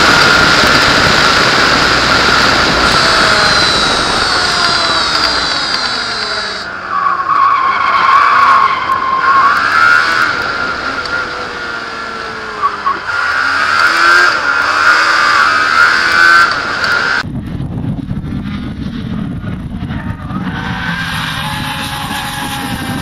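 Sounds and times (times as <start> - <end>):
buggy engine revving: 0.0 - 17.2, 19.4 - 23.0
tyre squeal: 2.2 - 11.6.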